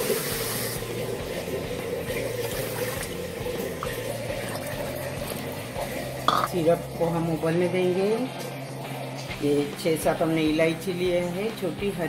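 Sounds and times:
water pouring and splashing: 0.0 - 7.0.

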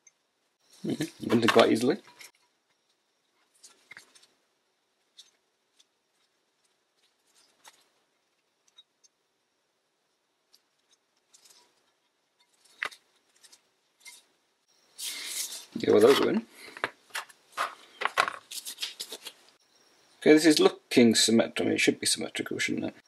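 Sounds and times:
clicks and scrapes of handling parts: 10.5 - 14.3, 15.0 - 19.6.

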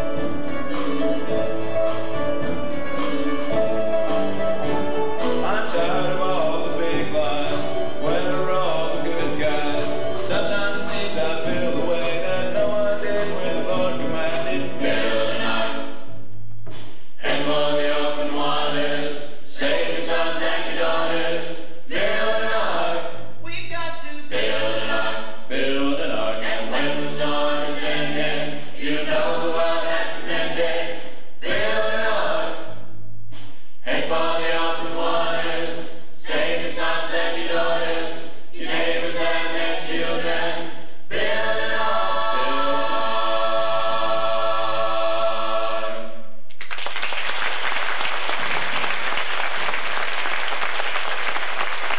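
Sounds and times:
choir of young male voices singing: 5.4 - 16.0, 17.2 - 23.2, 24.3 - 32.7, 33.8 - 46.2.

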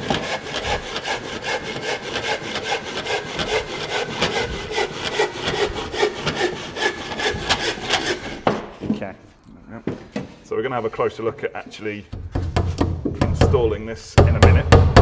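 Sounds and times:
handsaw cutting timber: 0.0 - 8.7.

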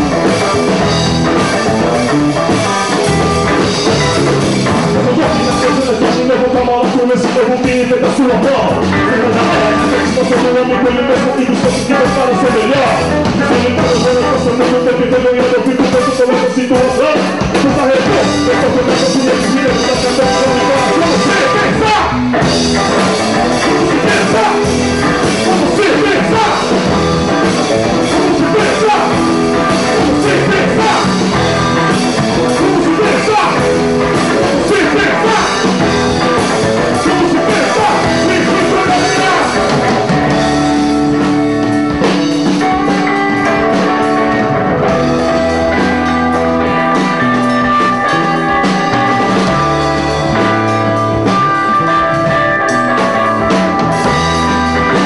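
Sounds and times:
electric guitars and bass: 0.0 - 55.0
man singing: 4.8 - 41.7.

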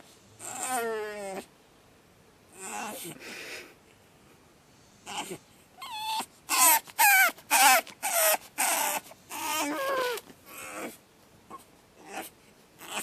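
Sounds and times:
puppy crying: 0.4 - 1.5, 2.6 - 3.2, 5.0 - 13.0.

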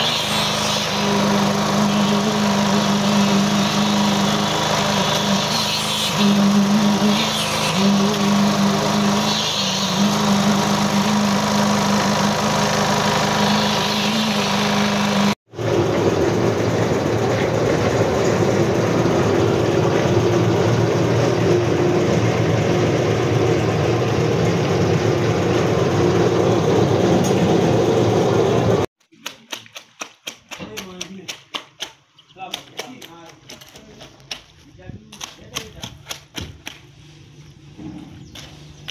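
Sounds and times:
small engine running: 0.0 - 28.9.

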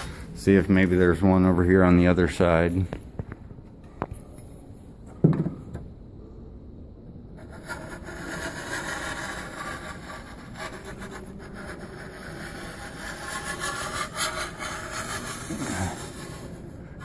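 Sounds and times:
putty knife scraping drywall: 7.4 - 17.0.

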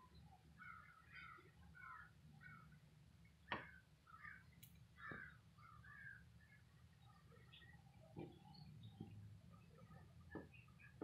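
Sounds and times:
crows calling: 0.6 - 2.8, 3.5 - 6.3.

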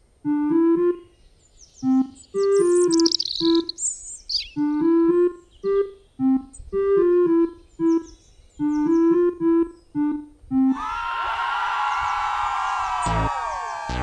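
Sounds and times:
keyboard melody: 0.2 - 1.2, 1.8 - 10.8
falling whistle: 8.6 - 14.0.

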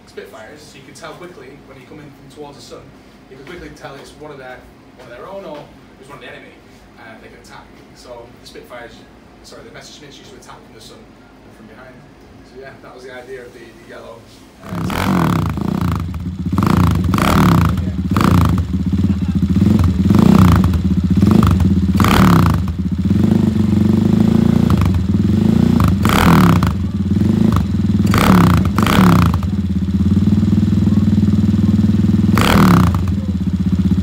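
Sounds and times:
motorcycle engine revving: 14.6 - 34.0.

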